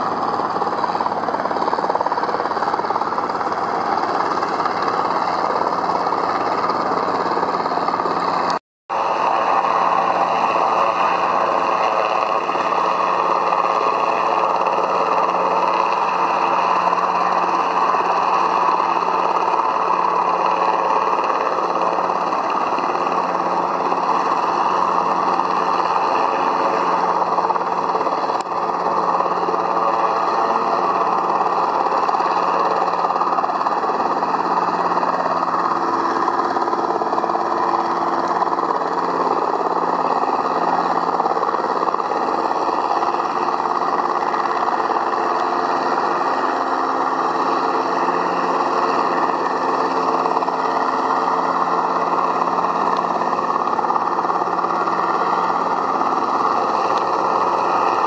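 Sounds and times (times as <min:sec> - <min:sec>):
propeller plane engine running: 0:00.0 - 0:58.0.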